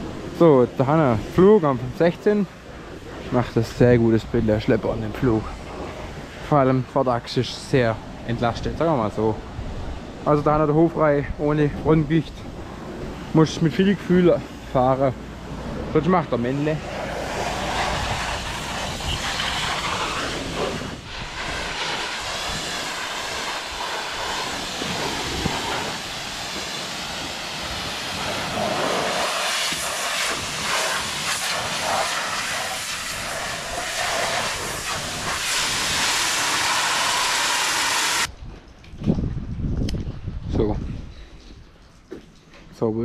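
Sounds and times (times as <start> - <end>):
pressure washer spraying water: 16.5 - 38.3.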